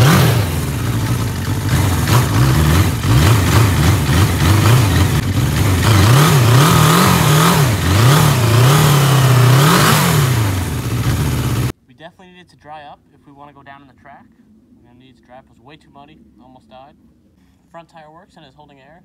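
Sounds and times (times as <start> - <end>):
motorcycle engine revving: 0.0 - 11.7.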